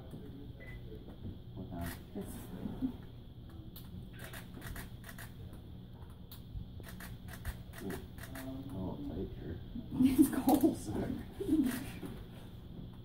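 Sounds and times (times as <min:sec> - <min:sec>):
sharp irregular clicks: 0:03.8 - 0:05.4, 0:06.3 - 0:08.6.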